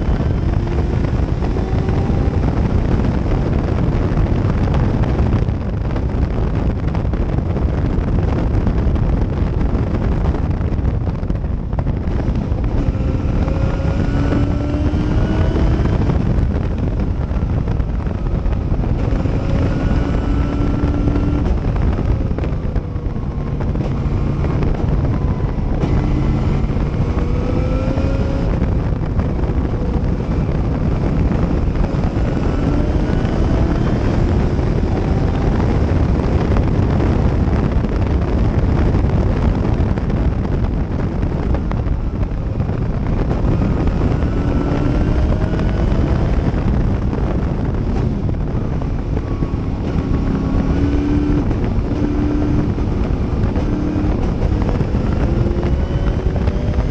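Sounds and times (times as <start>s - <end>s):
wind buffeting microphone: 0.0s - 56.9s
race car engine accelerating: 11.9s - 38.6s, 41.8s - 56.9s.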